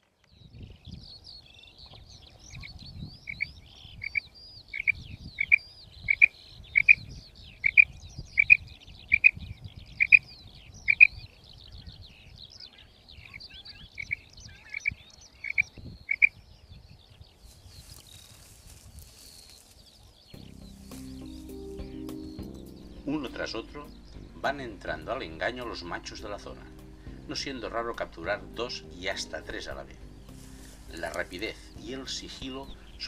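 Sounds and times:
small birds chirping: 0.0s - 33.0s
quail calling: 3.3s - 7.0s, 7.6s - 9.4s, 10.0s - 10.3s, 10.9s - 11.2s, 13.2s - 16.4s
low rumble: 20.4s - 33.0s.

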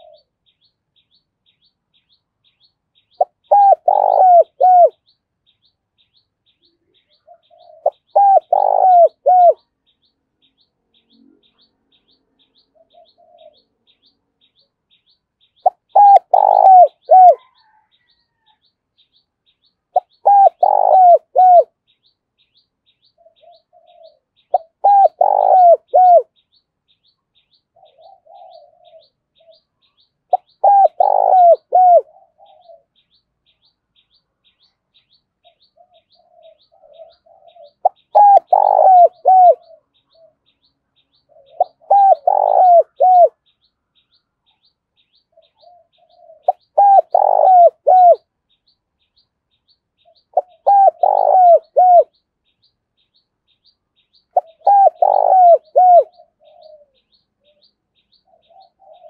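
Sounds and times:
dove cooing: 0.0s - 0.3s, 3.1s - 5.0s, 6.9s - 9.6s, 12.6s - 13.7s, 15.6s - 18.6s, 20.0s - 21.8s, 23.1s - 26.4s, 27.7s - 33.0s, 35.4s - 43.4s, 45.3s - 48.3s, 50.0s - 52.2s, 54.3s - 59.0s.

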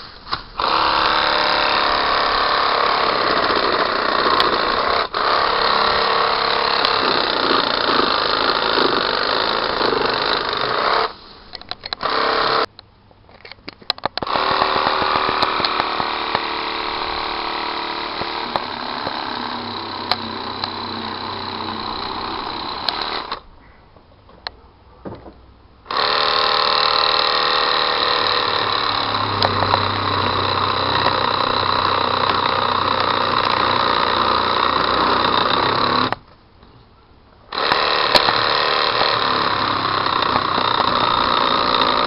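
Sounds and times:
pole saw cutting branches: 0.0s - 12.7s, 14.2s - 23.4s, 25.9s - 36.2s, 37.5s - 42.0s
clicks: 11.5s - 16.6s, 17.4s - 23.4s, 28.0s - 33.6s, 37.5s - 42.0s.

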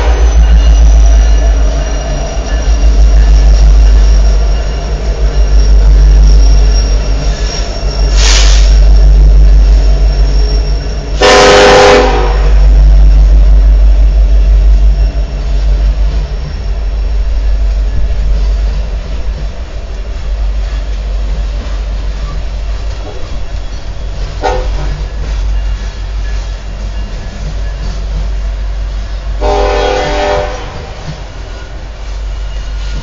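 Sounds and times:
train horn blast: 0.0s - 0.3s, 11.2s - 12.6s, 24.4s - 24.9s, 29.4s - 31.1s
diesel train rumbling past: 0.0s - 33.0s.

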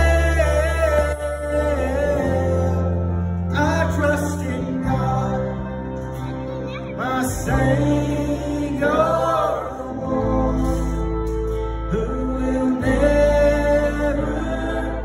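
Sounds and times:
man singing: 0.0s - 6.1s, 6.8s - 15.0s
low bass: 0.0s - 15.0s.

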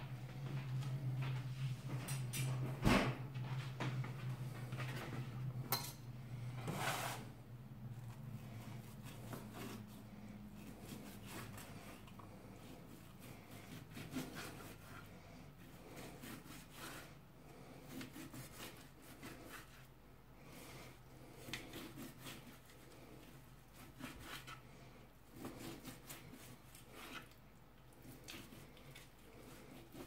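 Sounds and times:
knife sawing through meat: 8.8s - 19.9s, 21.3s - 24.7s, 25.3s - 27.4s, 28.0s - 30.0s.

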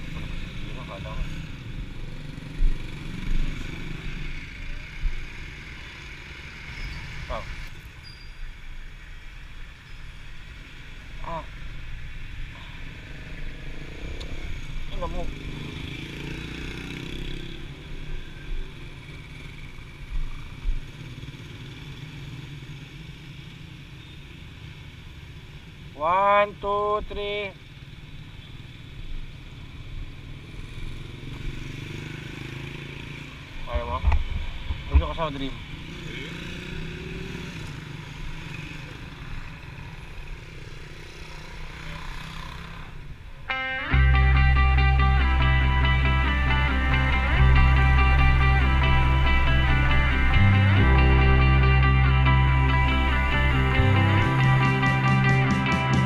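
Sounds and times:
low traffic rumble: 0.0s - 23.4s, 29.0s - 56.0s
motorcycles passing: 0.0s - 56.0s
passing engine: 30.6s - 56.0s
traffic engine rumble: 41.5s - 56.0s.

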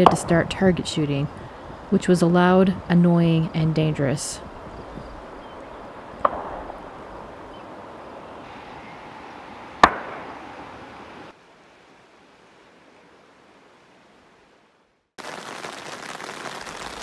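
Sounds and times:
gunshots with echo: 6.2s - 6.8s.

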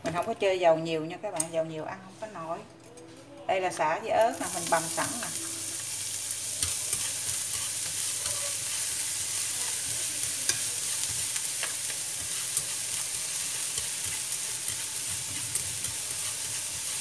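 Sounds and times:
food sizzling in oil: 4.2s - 17.0s.

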